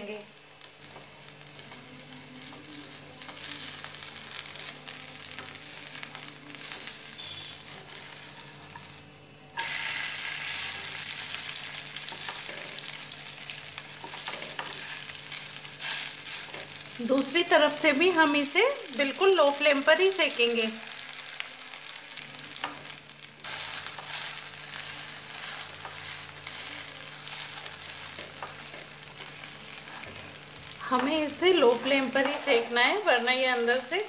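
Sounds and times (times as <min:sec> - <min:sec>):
batter sizzling in oil: 0:00.0 - 0:34.0.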